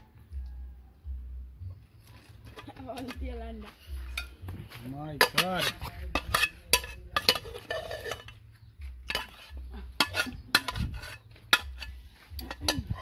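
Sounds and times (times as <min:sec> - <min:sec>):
crab shells clattering on metal: 0:05.2 - 0:08.4, 0:09.1 - 0:13.0.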